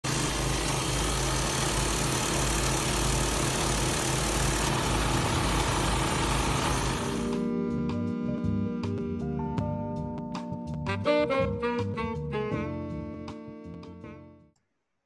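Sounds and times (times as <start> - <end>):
small gas engine running: 0.0 - 7.8.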